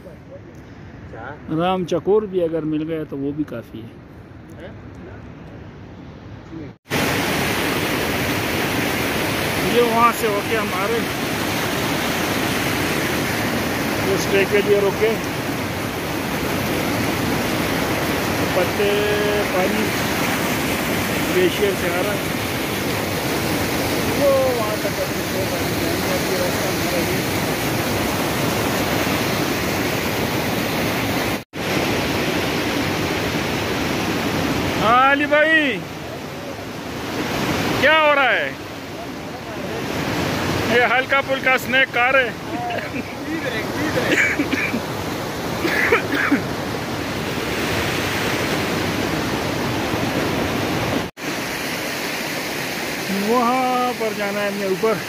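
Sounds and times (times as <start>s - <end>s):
stream rushing over rocks: 6.9s - 55.0s.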